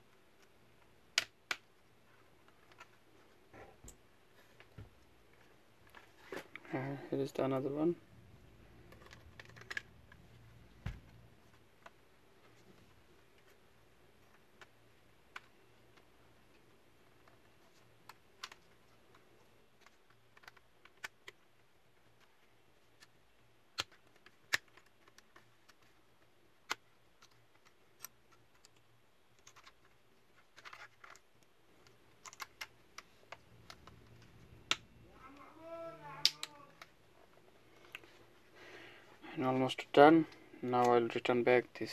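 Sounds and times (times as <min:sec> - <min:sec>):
faint steady hum: 0:00.0 - 0:41.9
laptop parts clicking and tapping: 0:00.4 - 0:01.8, 0:08.9 - 0:10.2, 0:14.2 - 0:34.9.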